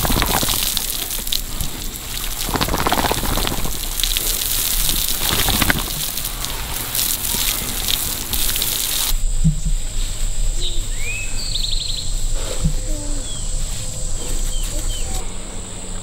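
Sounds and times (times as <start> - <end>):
hose water spraying on ground: 0.0 - 9.2.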